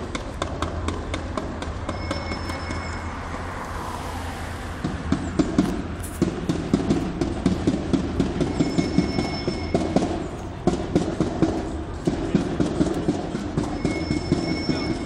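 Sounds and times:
low street hum: 0:00.0 - 0:15.0
rhythmic drum beats: 0:04.8 - 0:15.0.

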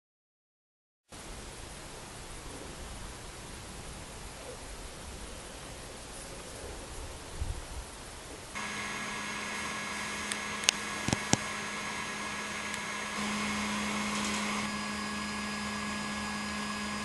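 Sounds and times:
machine hum with fixed tones: 0:08.5 - 0:17.0
sharp clicks: 0:10.2 - 0:11.6.

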